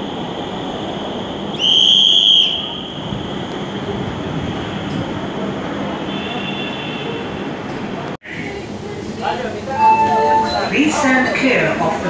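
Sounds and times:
metro train rumbling: 0.0s - 12.0s
shrill high-pitched tone: 9.7s - 10.7s.

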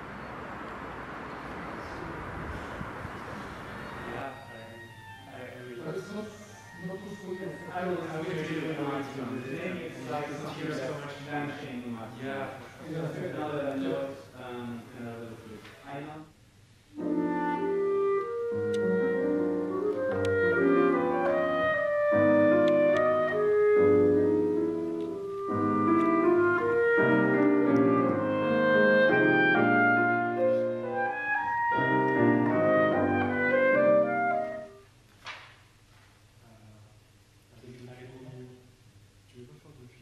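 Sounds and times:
grand piano: 0.0s - 12.1s, 16.9s - 34.8s
clarinet: 3.6s - 10.2s, 16.9s - 34.9s.

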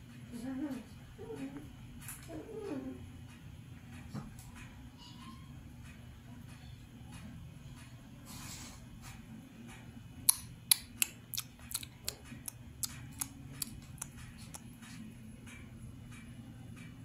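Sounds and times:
steady low hum: 0.0s - 17.0s
puppy claws on plastic and tile: 9.0s - 16.9s.

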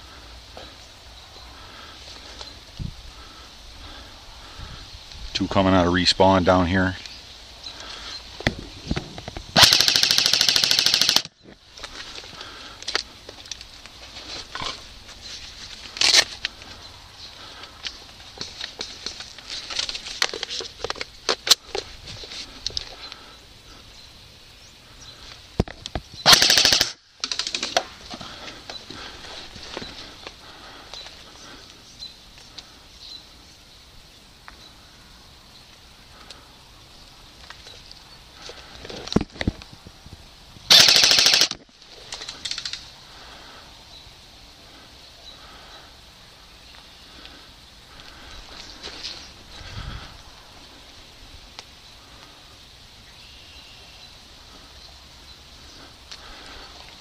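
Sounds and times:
airsoft rifle full-auto bursts: 9.6s - 11.3s, 26.2s - 27.6s, 40.7s - 41.6s
sharp clicks and snaps: 40.7s - 42.9s.

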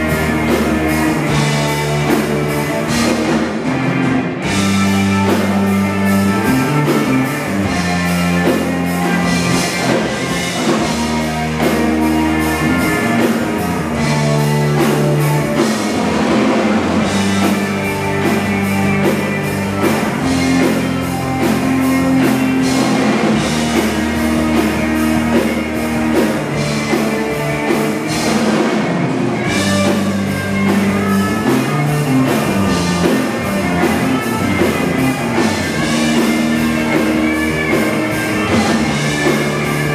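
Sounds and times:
bass guitar: 0.0s - 39.9s
drum kit beat: 0.0s - 39.9s
electric guitar: 0.0s - 39.9s.

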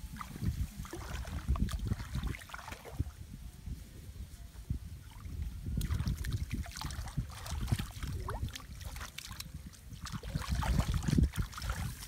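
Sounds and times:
rustling through wet straw: 0.0s - 12.0s
hands splashing in muddy water: 0.1s - 3.1s, 5.8s - 12.0s.

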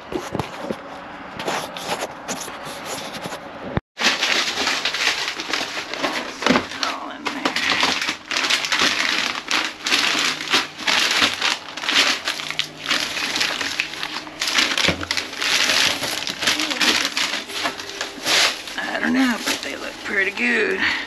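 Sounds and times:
plastic bags crinkling: 4.0s - 21.0s.

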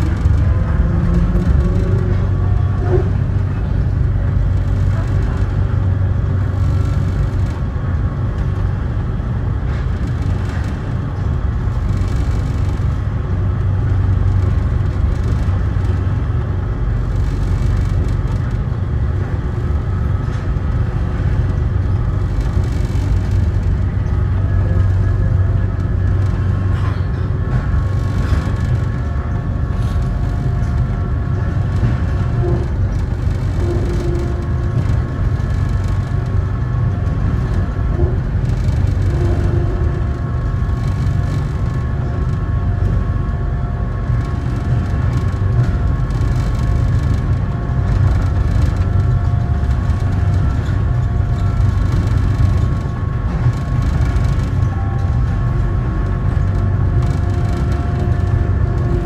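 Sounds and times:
train low rumble: 0.0s - 59.0s
train whining tones: 29.0s - 35.1s.

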